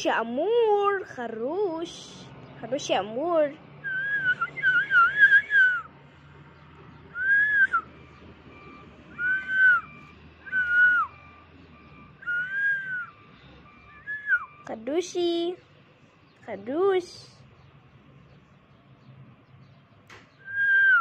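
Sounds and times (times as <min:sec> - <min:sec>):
cockatiel whistling: 0:03.9 - 0:05.8, 0:09.1 - 0:11.1, 0:12.2 - 0:13.1.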